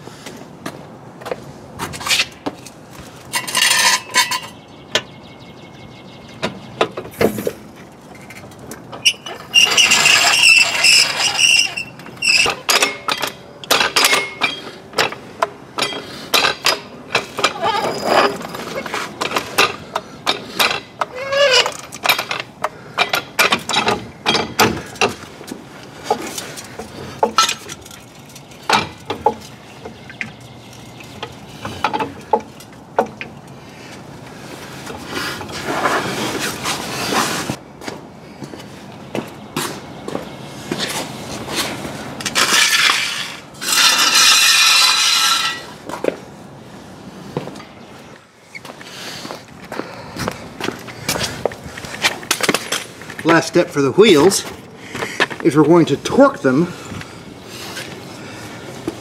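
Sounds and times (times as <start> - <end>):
short squeak: 9.0 - 12.6.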